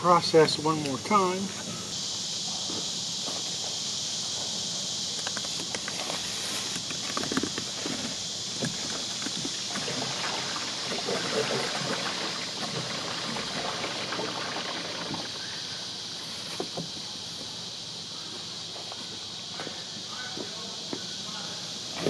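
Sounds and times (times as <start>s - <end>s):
steady high hiss: 0.0s - 22.0s
water gurgling down a hose: 8.6s - 15.4s.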